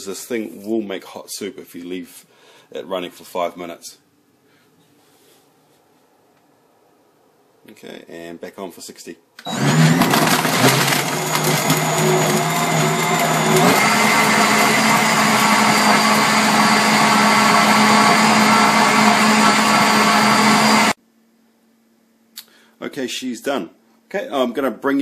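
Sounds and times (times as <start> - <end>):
blender motor whine and churning: 9.4 - 21.0.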